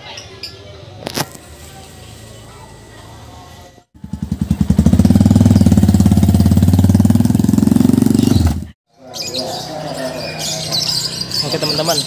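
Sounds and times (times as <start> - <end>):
motorcycle engine running: 4.0 - 8.8
birds chirping: 4.4 - 12.0.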